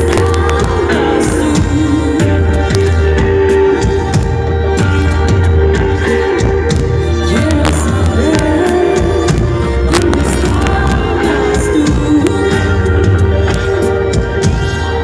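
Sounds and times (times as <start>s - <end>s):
woman singing: 0.0s - 4.1s, 7.0s - 14.1s
drums: 0.0s - 15.0s
guitar: 0.0s - 15.0s
live band playing: 0.0s - 15.0s.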